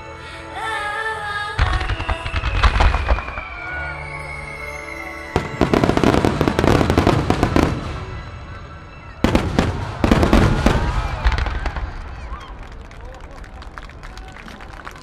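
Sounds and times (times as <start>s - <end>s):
music playing: 0.0s - 10.8s
fireworks bursting and crackling: 1.6s - 12.9s.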